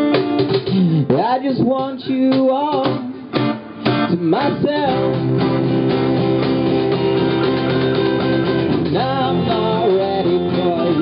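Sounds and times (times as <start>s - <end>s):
cajon drum: 0.0s - 11.0s
electric guitar: 0.0s - 11.0s
strummed acoustic guitar: 0.0s - 11.0s
person singing: 0.7s - 5.6s, 8.9s - 11.0s.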